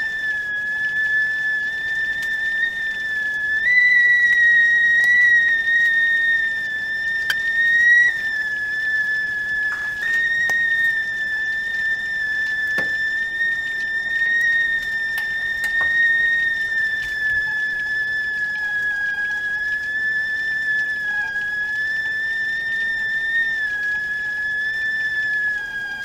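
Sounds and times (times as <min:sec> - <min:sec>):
teakettle whistling: 0:00.0 - 0:26.0.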